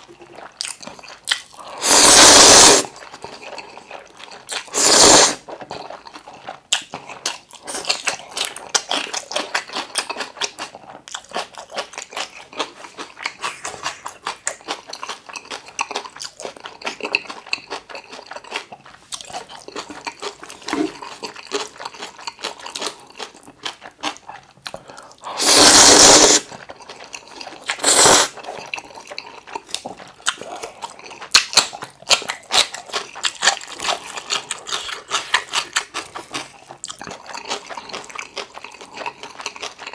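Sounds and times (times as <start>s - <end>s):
chewing mouth clicks and smacks: 0.0s - 1.7s, 5.6s - 25.2s, 26.5s - 39.9s
noodle slurp: 1.5s - 3.8s, 4.6s - 5.5s, 25.2s - 31.8s.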